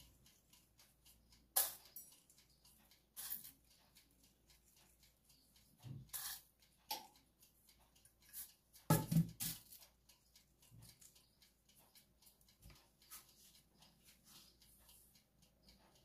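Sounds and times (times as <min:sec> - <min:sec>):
metal bowl knocking on worktop: 0:08.9 - 0:09.5.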